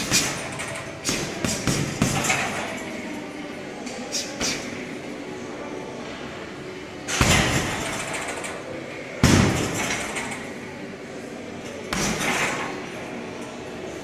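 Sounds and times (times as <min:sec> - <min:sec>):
strikes on heavy punching bag: 0:01.1 - 0:02.4.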